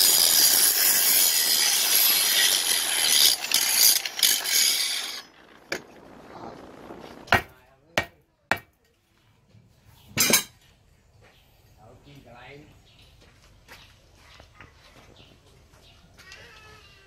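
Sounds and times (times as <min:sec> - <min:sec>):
angle grinder grinding steel: 0:00.0 - 0:06.5.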